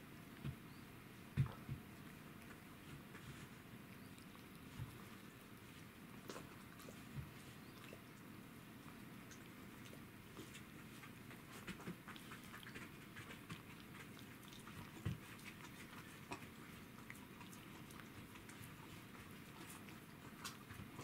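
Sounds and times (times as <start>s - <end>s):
cat crunching bone: 8.9s - 21.0s.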